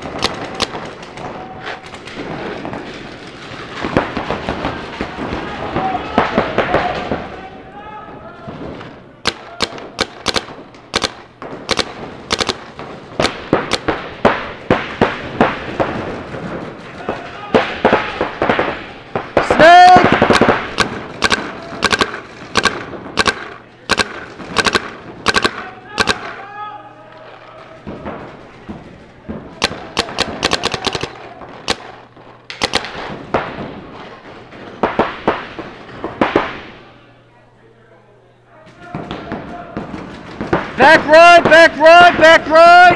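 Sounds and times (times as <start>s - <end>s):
paintball markers firing: 0.0s - 2.9s, 9.2s - 16.0s, 17.0s - 26.4s, 29.3s - 33.7s.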